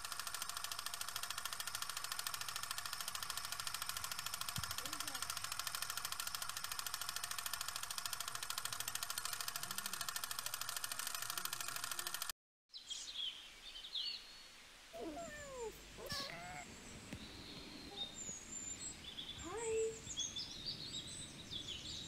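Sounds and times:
film projector clatter: 0:00.0 - 0:12.3
faint birds chirping: 0:12.7 - 0:22.0.

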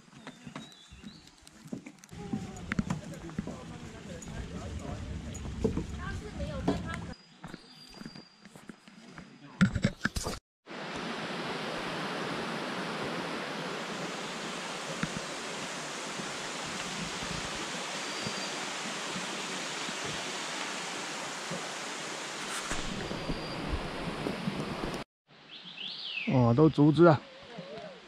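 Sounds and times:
stream rushing over rocks: 0:10.7 - 0:25.0.

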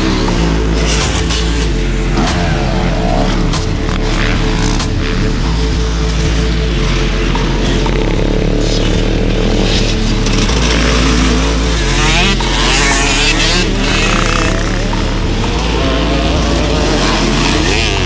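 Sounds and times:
motocross motorcycles revving: 0:00.0 - 0:18.0.

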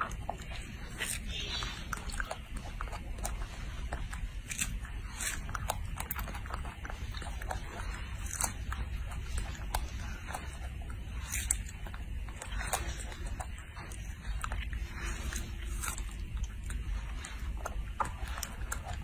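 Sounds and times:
low steady hum: 0:00.0 - 0:19.0
monkey chewing mouth clicks: 0:00.0 - 0:19.0.

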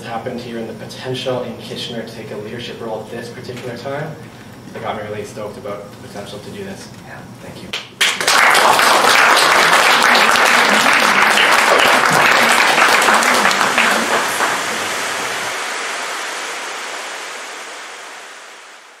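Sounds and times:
audience applauding: 0:08.0 - 0:17.0.

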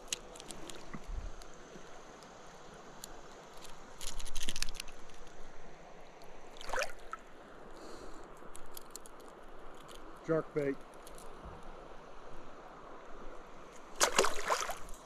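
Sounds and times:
water splashing and trickling: 0:06.5 - 0:07.3, 0:13.6 - 0:15.0.

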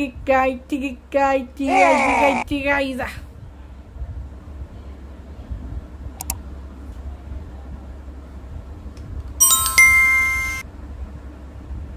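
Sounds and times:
bright bell chime: 0:09.4 - 0:10.6.

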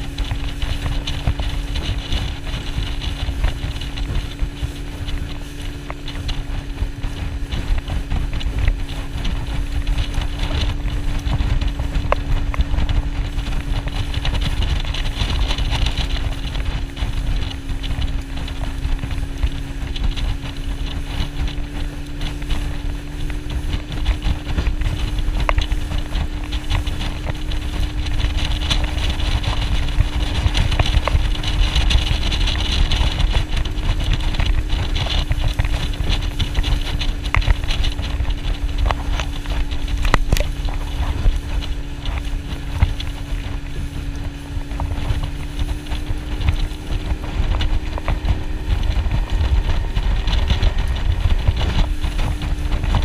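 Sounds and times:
outboard motor droning: 0:00.0 - 0:53.0
water noise: 0:00.0 - 0:53.0
wind: 0:00.0 - 0:53.0.

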